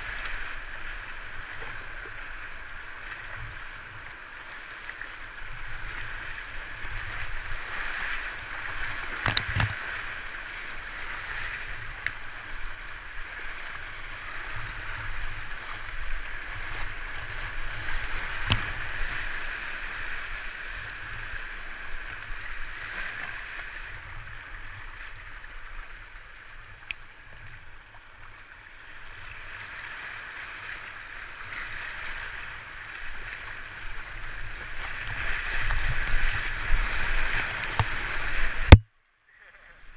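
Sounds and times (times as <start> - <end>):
paddle in water: 0.0 - 39.9
rushing whitewater splashing: 28.9 - 38.8.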